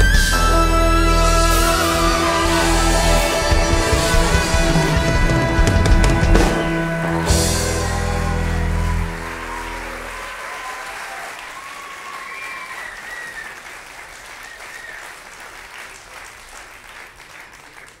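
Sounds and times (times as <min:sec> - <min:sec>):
band's final chord: 0:00.1 - 0:10.0
crowd cries: 0:00.5 - 0:13.7
audience applauding: 0:01.5 - 0:18.0.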